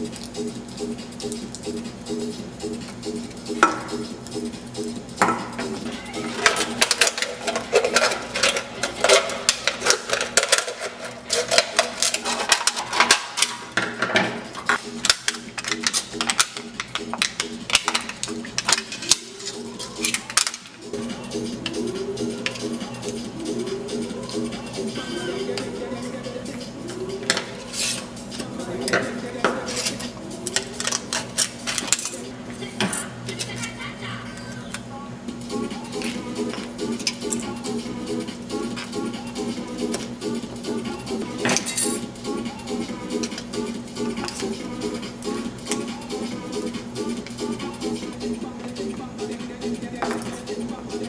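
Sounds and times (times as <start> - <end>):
metal crinkling: 6.2 - 13.8.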